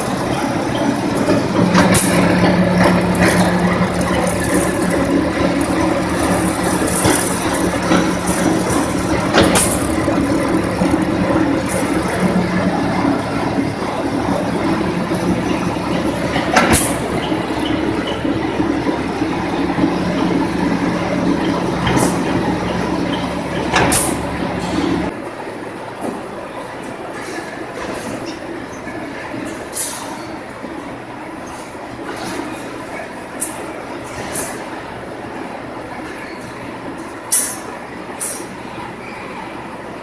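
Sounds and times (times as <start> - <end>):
machine motor hum: 0.0 - 25.1.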